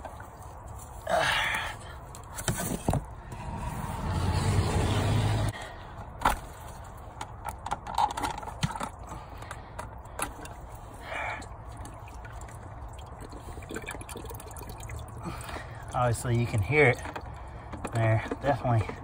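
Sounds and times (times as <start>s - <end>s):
fuel trickling: 9.0s - 19.0s.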